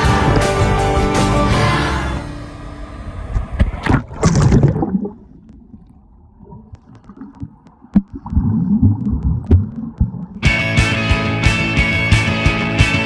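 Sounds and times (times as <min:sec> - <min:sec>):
muffled underwater rumbling: 0:02.8 - 0:10.4
swimmer stroke thumps and rushing: 0:03.3 - 0:05.8
water splashing: 0:03.3 - 0:10.5
sharp underwater clicks: 0:03.4 - 0:10.4.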